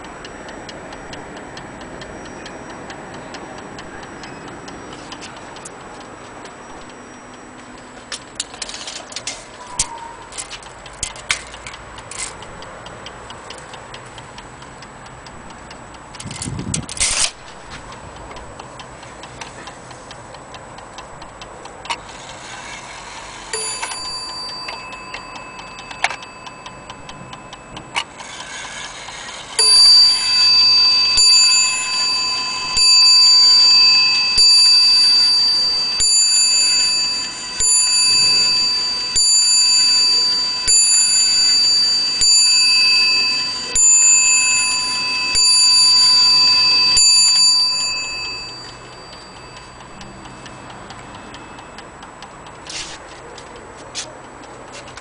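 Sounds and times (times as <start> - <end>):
clock movement clicks: 0.0 - 55.0
wall clock ticking: 0.0 - 55.0
clock bell striking: 21.9 - 52.0.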